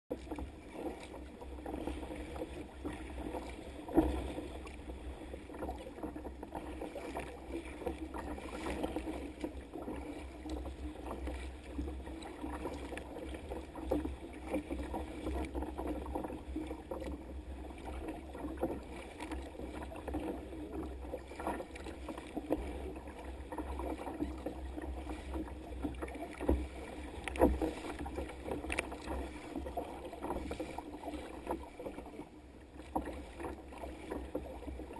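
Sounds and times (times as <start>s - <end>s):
waves splashing against kayak hull: 0.1s - 34.9s.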